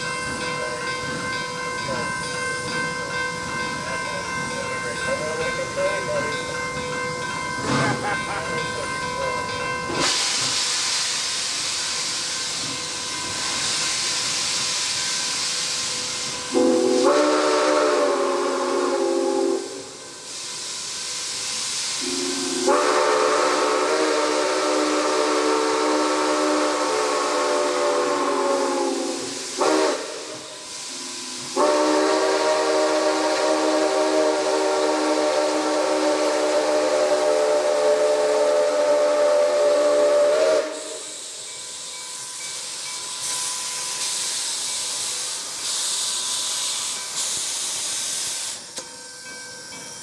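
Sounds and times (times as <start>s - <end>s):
steam hissing: 7.4s - 49.1s
steam whistle blasts: 16.5s - 20.6s, 21.8s - 41.5s.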